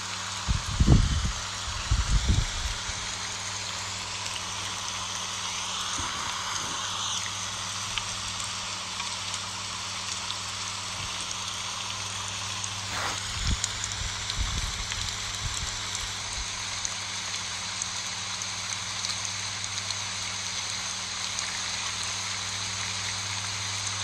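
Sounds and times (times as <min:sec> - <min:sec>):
rain pattering on leaves: 0:00.0 - 0:24.0.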